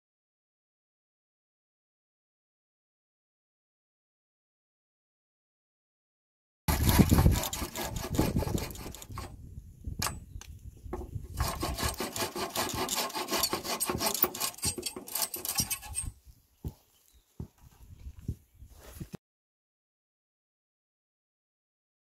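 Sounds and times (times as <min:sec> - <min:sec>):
saw cutting wood: 0:06.7 - 0:09.4, 0:11.3 - 0:16.1.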